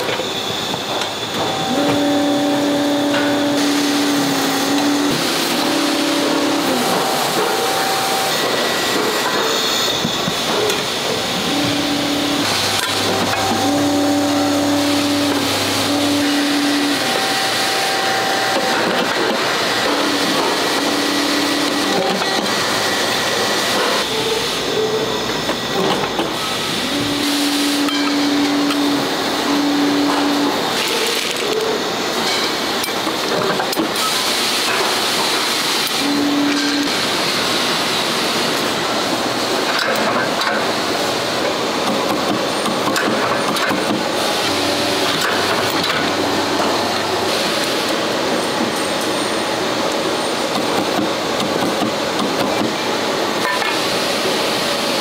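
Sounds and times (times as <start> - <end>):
factory machinery din: 0.0 - 55.0.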